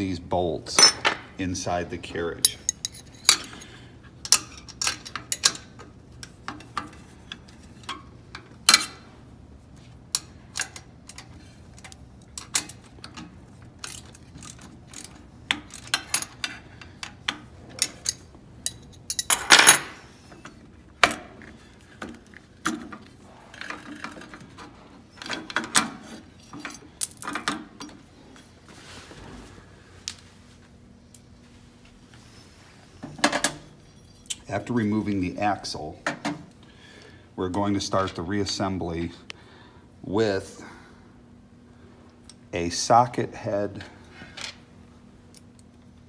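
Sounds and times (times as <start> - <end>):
wrench clinking against metal: 0.7 - 1.2, 2.3 - 5.8, 10.1 - 20.0.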